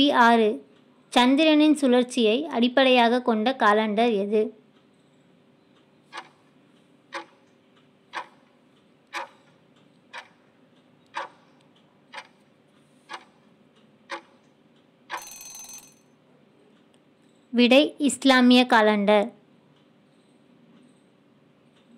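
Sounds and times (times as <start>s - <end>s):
clock ticking: 5.8s - 15.9s.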